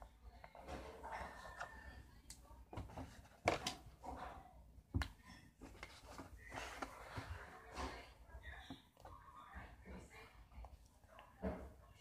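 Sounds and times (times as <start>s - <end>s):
paper rustling: 5.6s - 8.1s.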